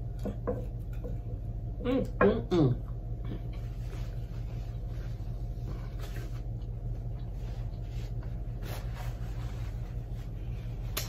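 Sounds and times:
low electrical hum: 0:00.0 - 0:11.0
paper napkin rustling: 0:07.3 - 0:10.9.

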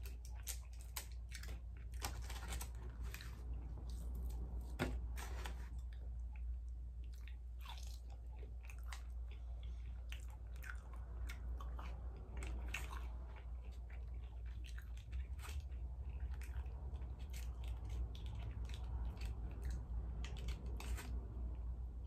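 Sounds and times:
food crunching: 0:00.0 - 0:21.7
person chewing with wet smacks: 0:05.7 - 0:21.7.

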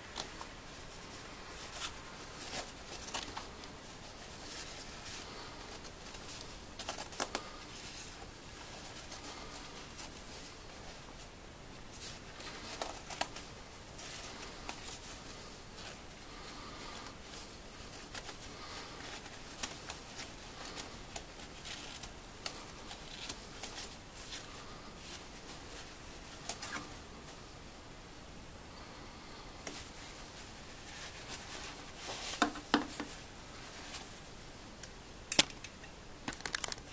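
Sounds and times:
nylon coat fabric rustling: 0:00.0 - 0:28.2, 0:29.6 - 0:34.8.

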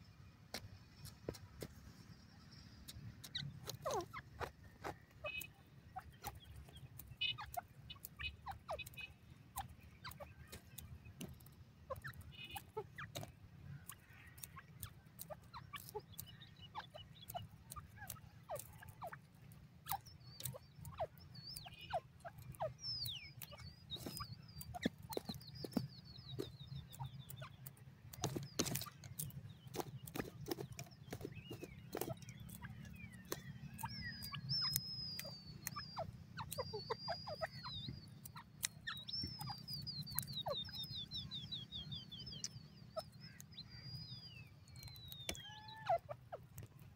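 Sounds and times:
light ticks and taps: 0:09.6 - 0:21.6, 0:22.4 - 0:41.0, 0:46.4 - 0:46.9
partridge soft falling chirps: 0:18.6 - 0:46.9.

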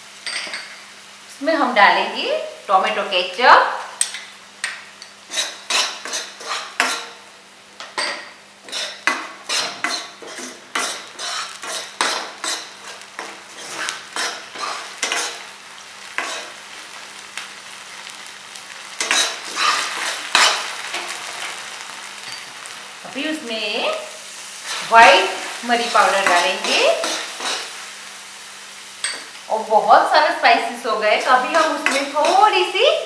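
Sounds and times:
sizzling in hot oil: 0:00.0 - 0:33.0
steel ladle scraping a pan: 0:05.3 - 0:07.2, 0:08.6 - 0:15.4, 0:16.2 - 0:16.6, 0:19.0 - 0:21.4, 0:25.9 - 0:27.8, 0:31.2 - 0:32.5.

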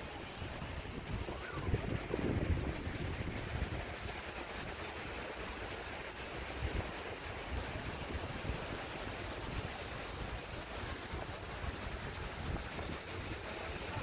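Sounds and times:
wind blowing over microphone: 0:00.0 - 0:04.2, 0:07.5 - 0:14.0
surf: 0:00.0 - 0:14.0.

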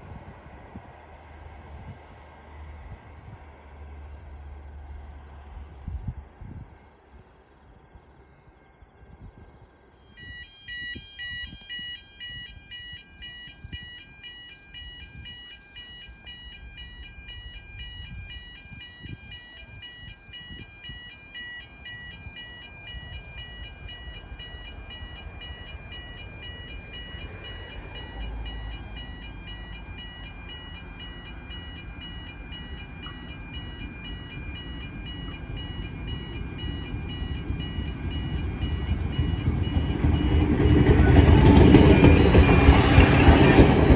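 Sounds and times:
diesel railcar rumble: 0:00.0 - 0:10.3, 0:21.8 - 0:43.9
level crossing warning bells: 0:09.9 - 0:43.9.

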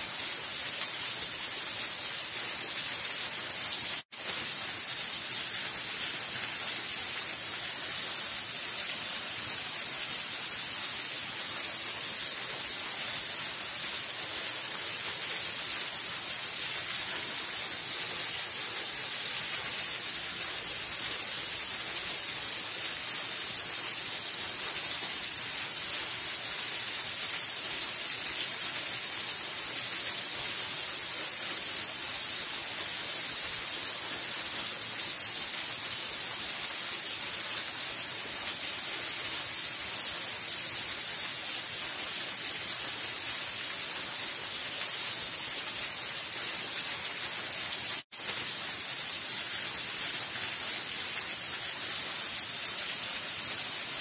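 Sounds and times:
small waterfall splashing on rocks: 0:00.0 - 0:54.0.

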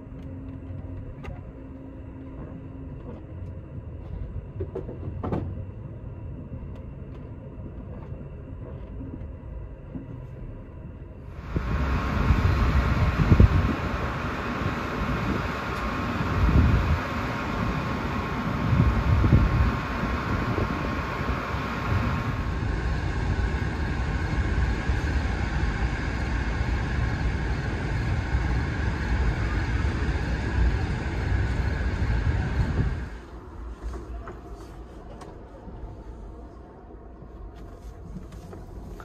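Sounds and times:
soft hum of standing train: 0:00.0 - 0:39.0
thin steady whine: 0:00.0 - 0:39.0
locomotive idling rumble: 0:11.3 - 0:34.7.

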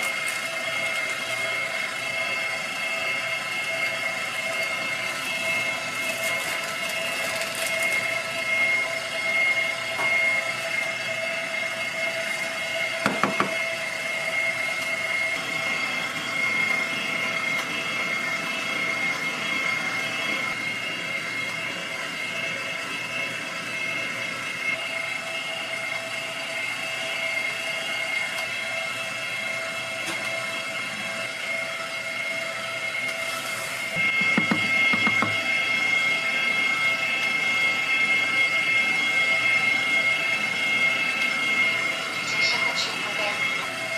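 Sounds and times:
machine hum with high whine: 0:00.0 - 0:43.9.

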